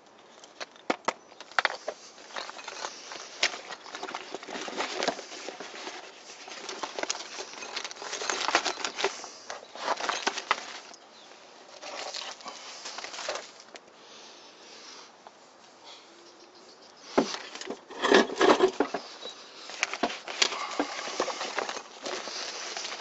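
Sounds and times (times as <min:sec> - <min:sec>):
nylon backpack rustling: 0:01.8 - 0:11.0, 0:19.7 - 0:23.0.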